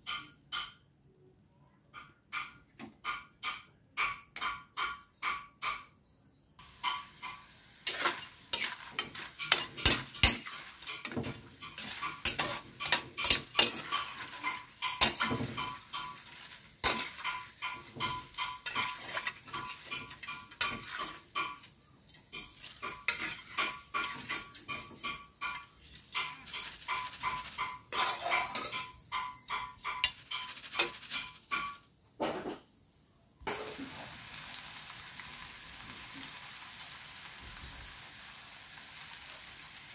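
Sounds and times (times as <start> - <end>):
metal utensils clanking on wok: 6.6 - 32.6, 33.5 - 34.0
potato slices sizzling in oil: 6.6 - 39.9.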